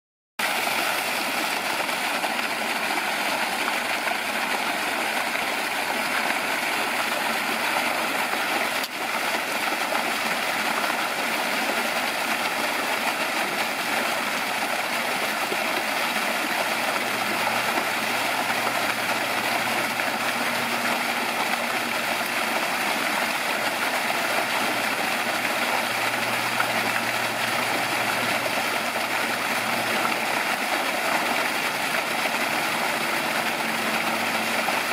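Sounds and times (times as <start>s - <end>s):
waterfall splashing into pool: 0.4s - 34.9s.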